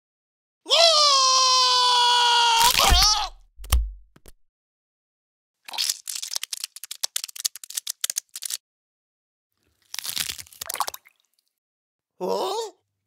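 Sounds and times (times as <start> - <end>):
wet squish: 2.6 - 3.8, 5.6 - 8.6, 9.7 - 11.5
cartoon clicks and rattles: 6.4 - 8.6.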